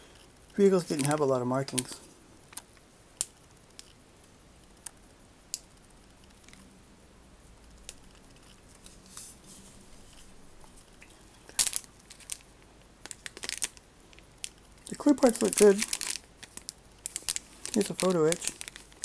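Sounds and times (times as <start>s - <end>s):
plastic bag crinkle: 0.6s - 2.7s, 11.4s - 19.0s
plastic bag rustling: 13.0s - 13.8s, 14.9s - 19.0s.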